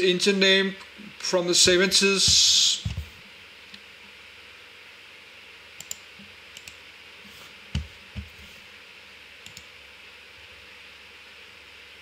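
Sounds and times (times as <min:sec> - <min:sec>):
computer mouse clicking: 0:05.8 - 0:06.0, 0:06.6 - 0:06.8, 0:09.4 - 0:09.7.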